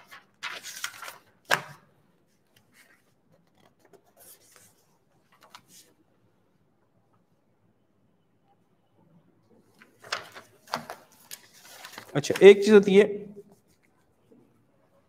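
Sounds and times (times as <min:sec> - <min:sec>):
scrapes and rustles of handling: 0:09.8 - 0:12.7.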